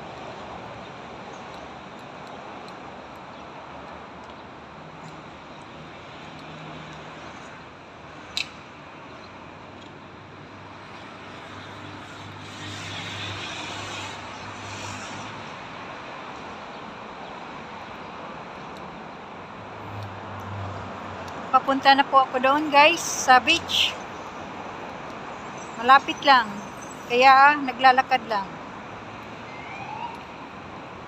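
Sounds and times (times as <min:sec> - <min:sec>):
city traffic passing: 0:00.0 - 0:31.0.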